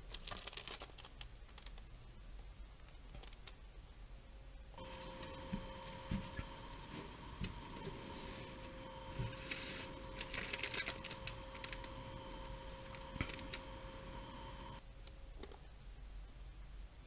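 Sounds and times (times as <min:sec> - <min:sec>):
plastic wrapper crinkling: 0:00.0 - 0:01.9, 0:04.8 - 0:14.8
faint steady hum: 0:01.2 - 0:17.0.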